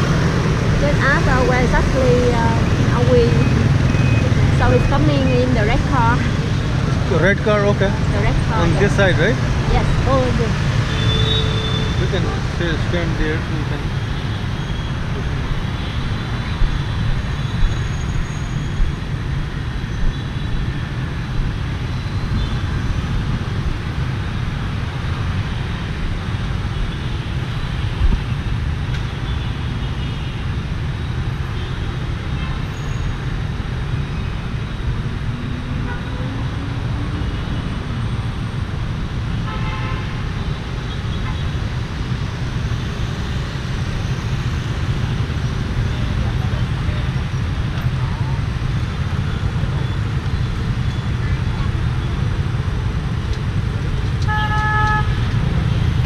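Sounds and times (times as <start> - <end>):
scooters and cars passing: 0.0 - 56.0
long horn: 54.2 - 55.7.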